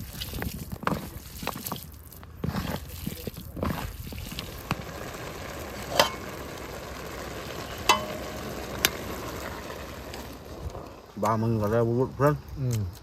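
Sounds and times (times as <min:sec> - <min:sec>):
food sizzling in a pan: 0:04.2 - 0:10.9
metal utensil clinking on pan: 0:07.9 - 0:08.4.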